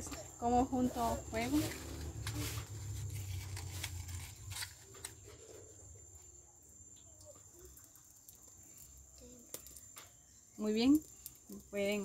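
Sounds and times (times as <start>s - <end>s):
firewood sticks handled: 1.0s - 5.9s.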